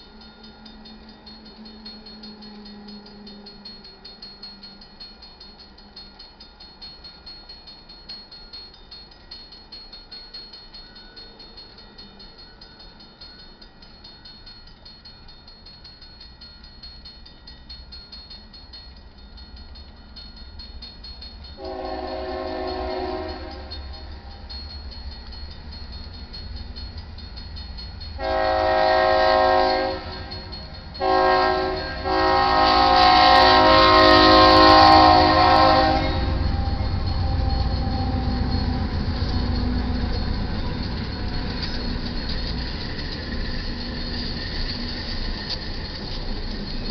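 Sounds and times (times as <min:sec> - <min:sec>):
crossing bell ringing: 0:00.0 - 0:46.9
locomotive engine rumble: 0:18.9 - 0:46.9
locomotive horn blasts: 0:21.6 - 0:23.8, 0:28.2 - 0:30.4, 0:31.0 - 0:38.5.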